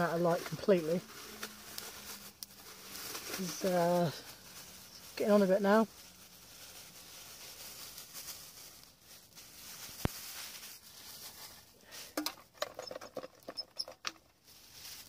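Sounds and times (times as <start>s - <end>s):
faint steady hiss: 0.0s - 12.2s
clicks and taps of cooking gear: 12.1s - 14.3s.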